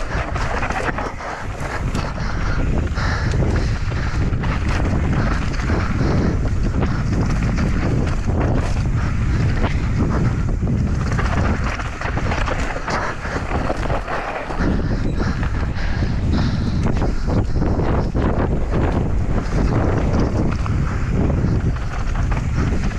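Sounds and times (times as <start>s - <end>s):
bike clicks and knocks: 0.0s - 22.9s
wind noise on microphone: 0.0s - 22.9s
tyres rolling over stones: 11.0s - 14.9s.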